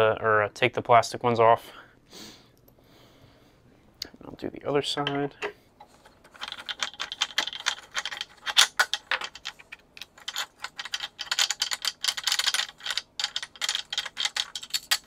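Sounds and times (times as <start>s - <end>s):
small metallic clicking and rattling: 6.0s - 15.0s.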